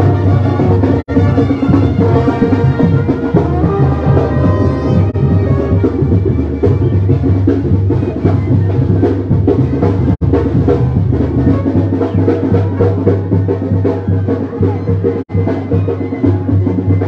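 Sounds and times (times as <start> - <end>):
marching brass band: 0.0 - 17.0
steady drum beat: 0.0 - 17.0
sousaphone bass line: 1.0 - 17.0.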